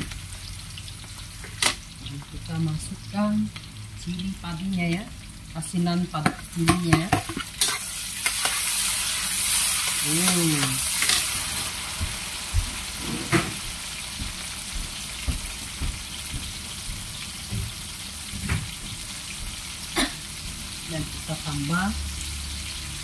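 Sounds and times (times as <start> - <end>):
food sizzling in hot oil: 0.0 - 23.0
metal spoon scraping a pan: 6.8 - 11.4.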